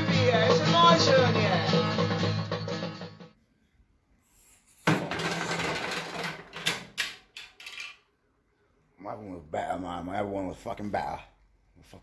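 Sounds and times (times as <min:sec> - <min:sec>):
objects clattering and knocking: 0:04.8 - 0:08.1.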